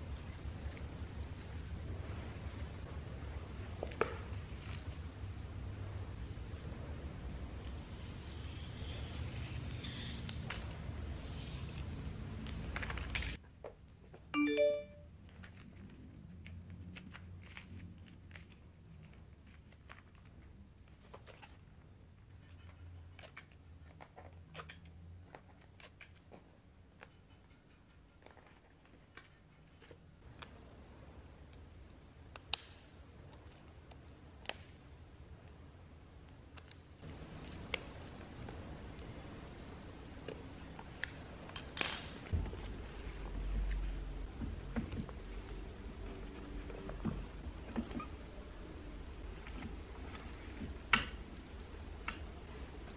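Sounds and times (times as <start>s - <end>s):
rising three-note chime: 14.4s - 15.0s.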